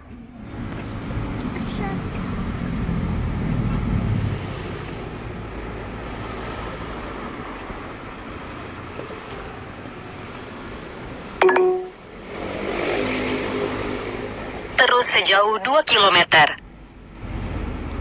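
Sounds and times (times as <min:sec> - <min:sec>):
car road and engine noise: 0:00.0 - 0:18.0
short loud beep: 0:11.4 - 0:12.0.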